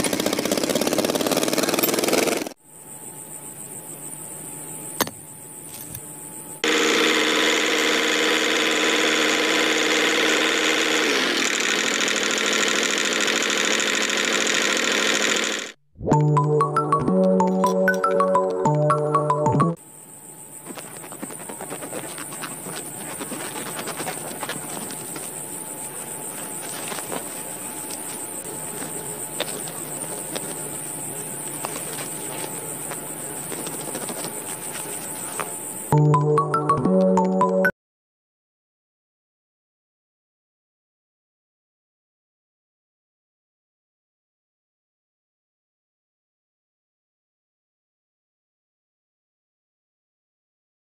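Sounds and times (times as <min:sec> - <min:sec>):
toy tractor motor drone: 0:00.0 - 0:02.6, 0:06.6 - 0:15.8
insects chirring: 0:00.2 - 0:10.8, 0:19.8 - 0:37.6.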